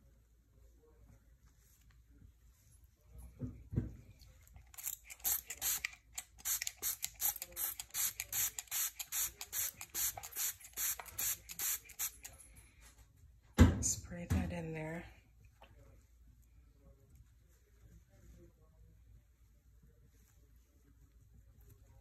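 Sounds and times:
spray bottle hissing: 5.2s - 12.2s.

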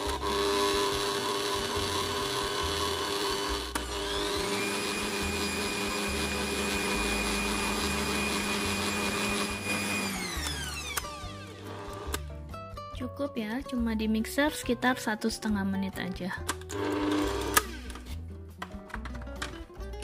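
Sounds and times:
stand mixer motor whine: 0.0s - 12.2s, 16.7s - 18.1s.

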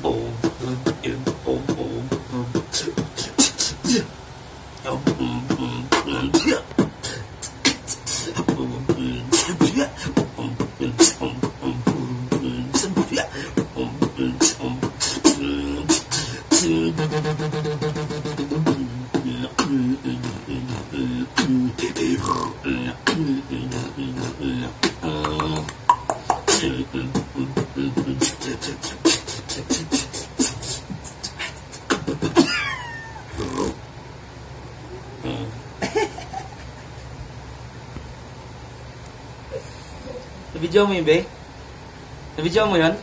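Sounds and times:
hummed bass line: 0.0s - 4.0s, 4.8s - 7.2s, 8.4s - 31.1s
man beatboxing: 0.0s - 4.1s, 4.8s - 32.6s, 33.3s - 33.8s, 35.0s - 35.8s.

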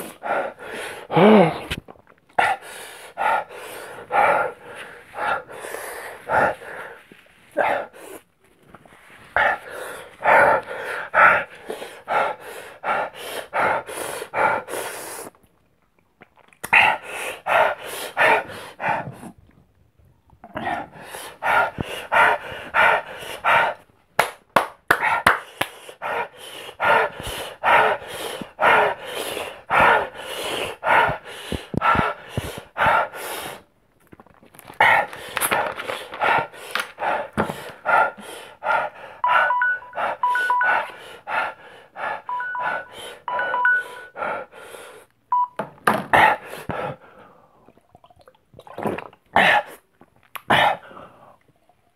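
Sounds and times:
man panting hard: 0.0s - 1.6s, 2.4s - 8.3s, 9.4s - 15.2s, 16.8s - 19.4s, 20.8s - 23.9s, 24.9s - 33.7s, 34.8s - 45.1s, 46.1s - 47.4s.

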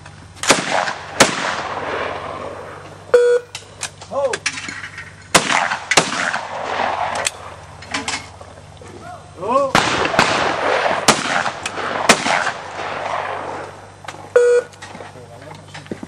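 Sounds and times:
shotgun shots with rolling echo: 0.4s - 2.9s, 5.3s - 7.6s, 9.8s - 14.3s.

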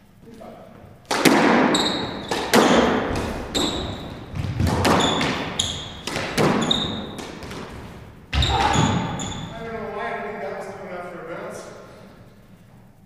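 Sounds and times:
shoes squeaking on wooden floor: 0.8s - 9.8s
squash ball smacking off racquets: 1.0s - 9.5s.

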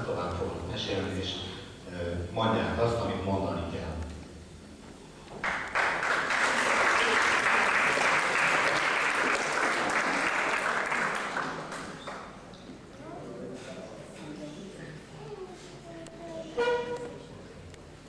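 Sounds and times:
audience applauding: 5.4s - 12.3s.

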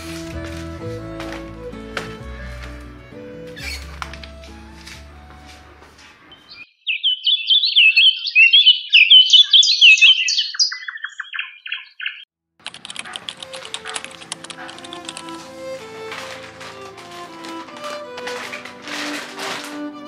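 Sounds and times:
music with plucked notes: 0.0s - 5.8s, 13.4s - 20.0s
songbird chirping: 6.2s - 12.3s.

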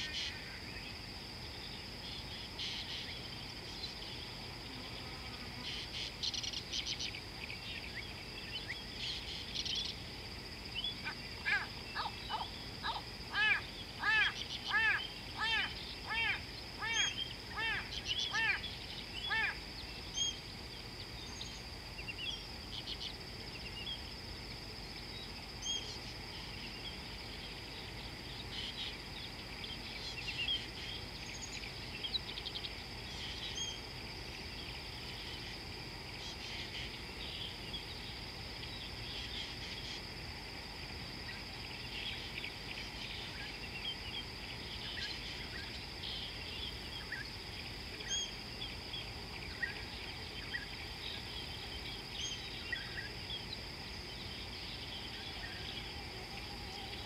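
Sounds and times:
high-pitched insect drone: 0.0s - 57.0s
bird chirps and calls: 10.8s - 19.6s.

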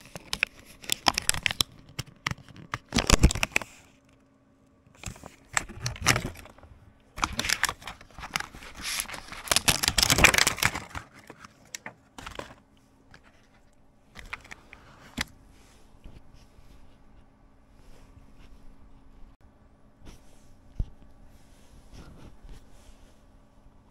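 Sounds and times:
plastic film crinkling and tearing: 0.0s - 3.8s, 5.0s - 6.6s, 7.2s - 12.6s.

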